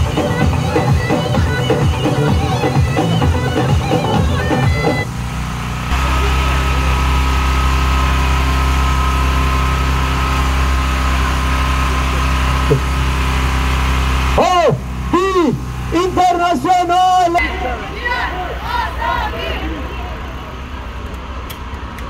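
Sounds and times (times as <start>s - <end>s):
music: 0.0s - 5.1s
low engine hum: 0.0s - 22.0s.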